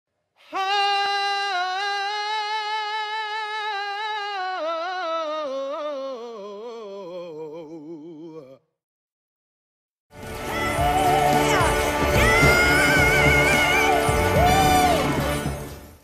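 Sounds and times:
man singing a cappella: 0:00.4 - 0:08.7.

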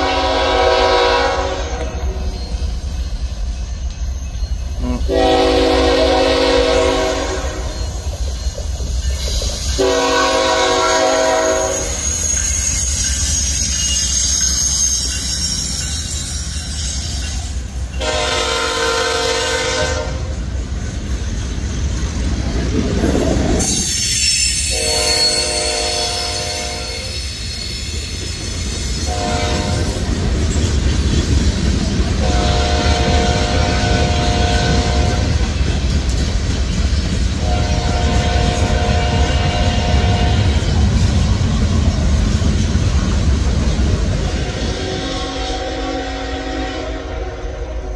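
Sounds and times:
train horn blasts: 0:00.0 - 0:02.2, 0:04.8 - 0:07.9, 0:09.8 - 0:12.0, 0:18.0 - 0:20.4, 0:24.6 - 0:27.2, 0:29.0 - 0:30.0, 0:32.2 - 0:35.5, 0:37.4 - 0:40.8, 0:44.4 - 0:47.9
train rumbling and clattering: 0:00.0 - 0:47.9.

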